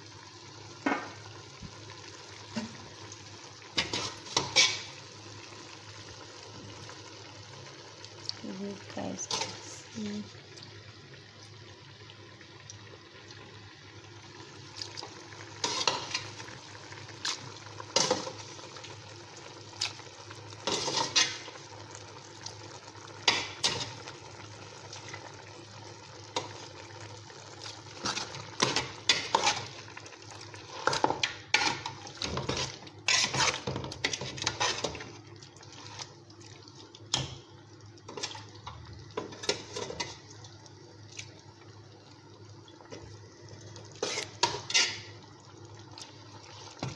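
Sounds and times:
metal spoon scraping pot: 0:32.5 - 0:35.0, 0:44.0 - 0:45.1.

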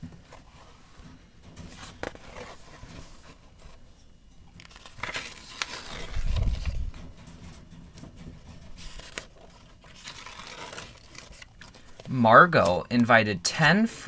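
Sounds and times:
paper pages turning: 0:01.7 - 0:03.8, 0:04.6 - 0:07.4, 0:08.0 - 0:13.0.

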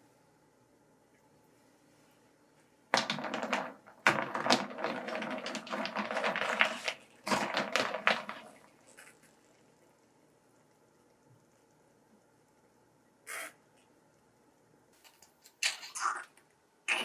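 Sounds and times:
snail shells clattering: 0:03.0 - 0:09.2.

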